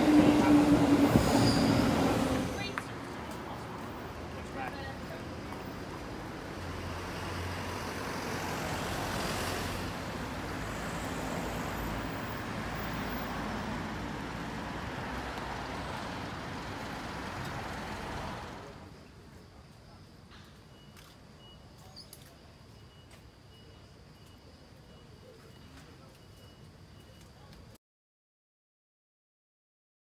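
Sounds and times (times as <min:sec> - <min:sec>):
passing cars road noise: 0:00.0 - 0:19.0.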